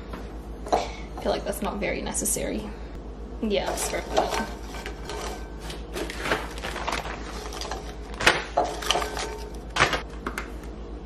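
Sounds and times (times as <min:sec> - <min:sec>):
cookies clattering in glass bowl: 0:03.7 - 0:10.0
plastic bag crinkling: 0:03.9 - 0:10.1.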